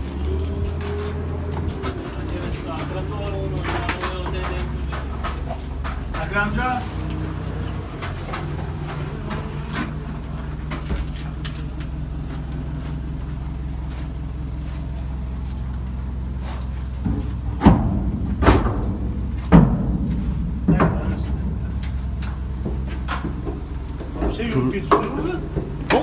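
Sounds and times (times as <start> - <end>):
engine idling: 0.0 - 26.0
loud knocks: 17.0 - 26.0.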